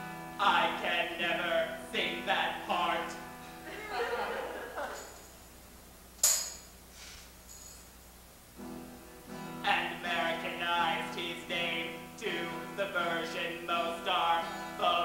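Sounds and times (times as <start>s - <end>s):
acoustic guitar strumming: 0.0s - 5.6s, 8.6s - 15.0s
man singing: 0.4s - 4.0s, 9.6s - 15.0s
tambourine jingling: 4.8s - 5.6s, 6.2s - 6.8s, 7.4s - 8.0s.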